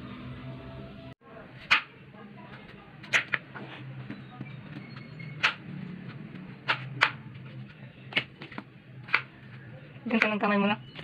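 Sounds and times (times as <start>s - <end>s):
low hum: 0.0s - 1.2s.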